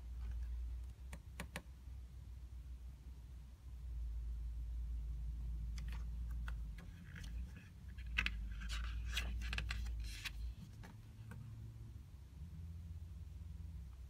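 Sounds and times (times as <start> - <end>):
low steady hum: 0.0 - 14.0
book pages rustling: 5.7 - 11.4.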